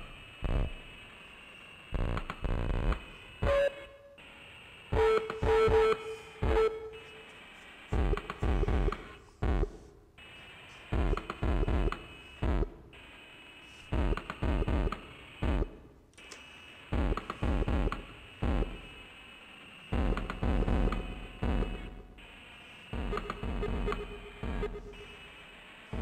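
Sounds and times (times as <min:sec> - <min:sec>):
looping electronic drum pattern: 0:02.0 - 0:03.8, 0:04.9 - 0:07.1, 0:07.9 - 0:09.9, 0:10.8 - 0:13.0, 0:13.9 - 0:15.9, 0:16.9 - 0:19.0, 0:19.9 - 0:22.2, 0:22.9 - 0:26.0.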